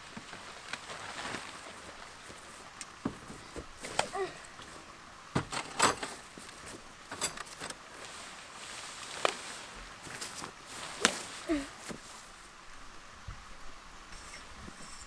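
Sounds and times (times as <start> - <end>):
camping gear knocking and rustling: 0.0 - 12.3.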